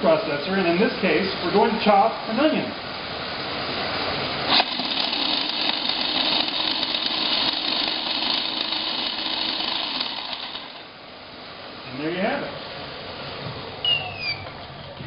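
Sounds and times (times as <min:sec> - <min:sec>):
food processor motor chopping: 0:04.5 - 0:10.8.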